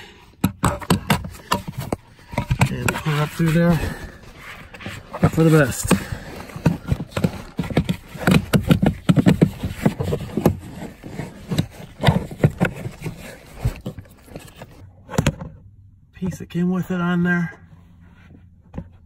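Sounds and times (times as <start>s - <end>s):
plastic clicks knocks and scraping: 0.4s - 3.6s, 4.7s - 15.5s.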